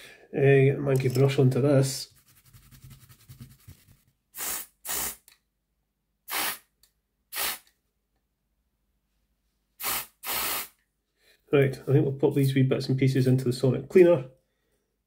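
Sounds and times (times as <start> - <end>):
aerosol spray can squirts: 4.4 - 5.3, 6.3 - 6.7, 7.3 - 7.7, 9.8 - 10.8.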